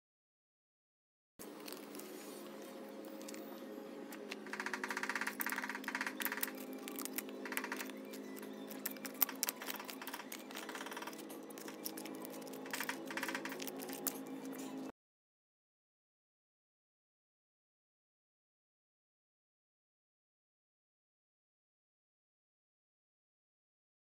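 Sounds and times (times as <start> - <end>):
pebbles clicking against blade: 4.1 - 14.8.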